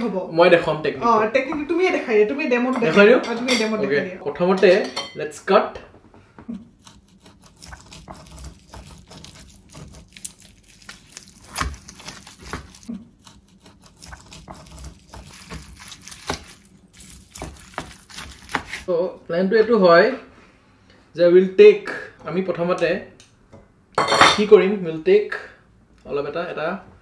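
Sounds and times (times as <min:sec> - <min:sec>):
meat scraping and crackling: 0:06.6 - 0:18.9.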